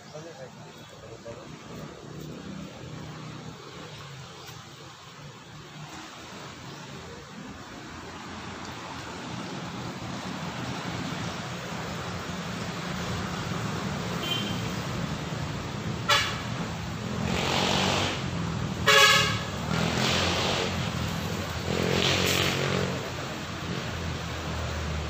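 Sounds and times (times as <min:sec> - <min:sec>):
road traffic passing: 0:00.0 - 0:25.0
vehicle horn toots: 0:14.2 - 0:14.7, 0:16.1 - 0:16.5, 0:18.8 - 0:19.6.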